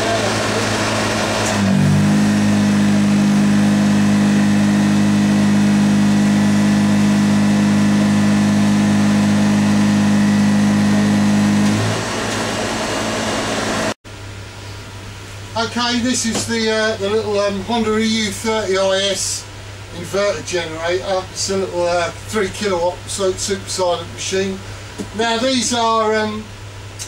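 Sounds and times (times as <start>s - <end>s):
generator engine humming: 0.0s - 14.0s.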